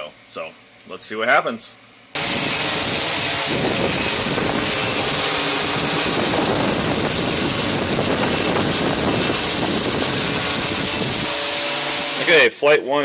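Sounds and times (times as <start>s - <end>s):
drone motors buzzing in hover: 2.2s - 12.4s.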